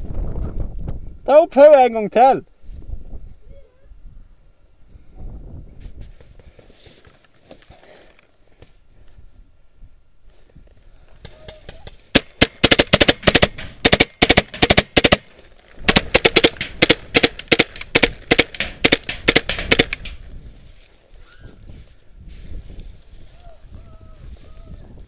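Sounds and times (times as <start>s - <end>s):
paintball marker firing: 11.3s - 20.3s.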